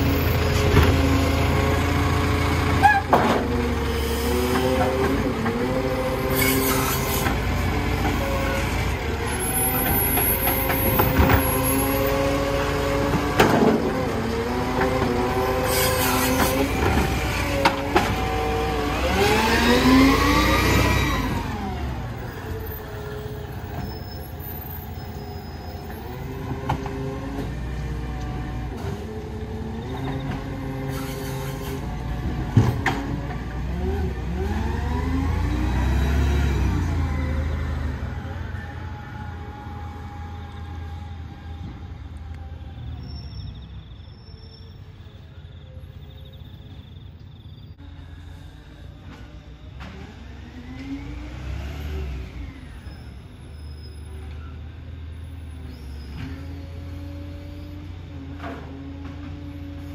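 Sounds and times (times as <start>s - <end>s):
engine whine: 0.0s - 43.9s
garbage truck diesel engine: 0.0s - 59.9s.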